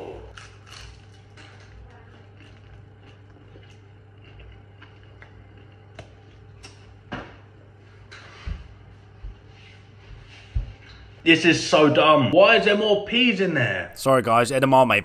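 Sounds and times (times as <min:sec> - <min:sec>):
pastry crunching while chewed: 0:00.0 - 0:07.1
low steady hum: 0:00.0 - 0:15.0.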